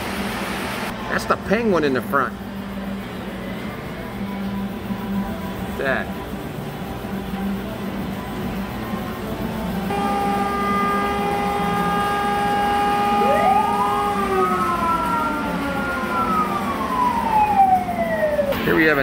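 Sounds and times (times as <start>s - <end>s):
sirens wailing: 9.9s - 19.0s.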